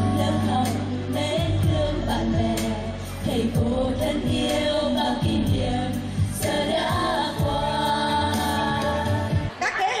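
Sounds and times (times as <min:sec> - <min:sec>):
backing track with steady beat: 0:00.0 - 0:09.8
women singing together: 0:00.0 - 0:10.0.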